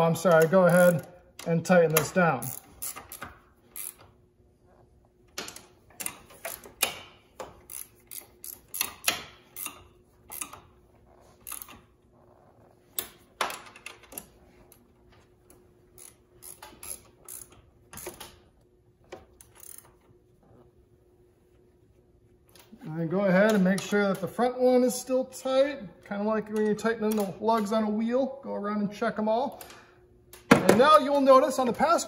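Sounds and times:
wrench clicking on bolts: 0.1s - 4.1s, 5.3s - 10.7s, 11.4s - 11.9s, 15.9s - 18.4s, 19.1s - 20.0s, 26.5s - 27.7s.

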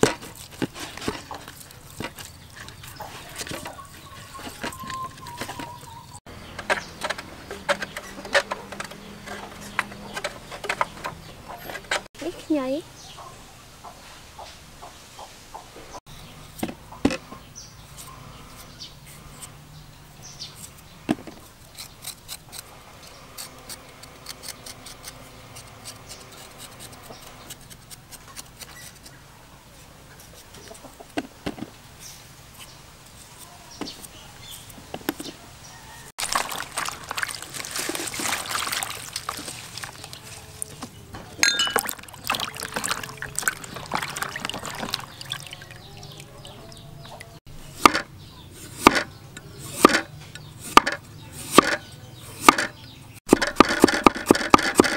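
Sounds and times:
knife scraping ginger: 21.4s - 29.2s, 48.6s - 52.6s
hands splashing in water: 36.2s - 40.4s, 41.6s - 46.8s.

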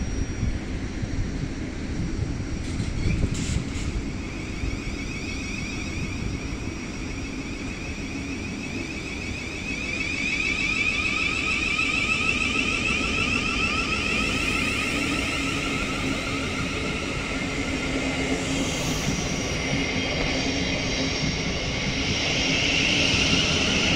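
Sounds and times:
electric traction whine: 0.0s - 23.9s
wheels rumbling on rail: 0.0s - 23.9s.

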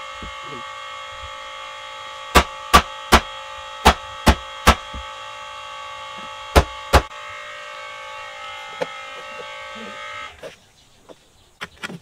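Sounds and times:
electrical hum: 0.0s - 12.0s
hammer striking wood: 2.3s - 5.1s, 6.5s - 7.1s.

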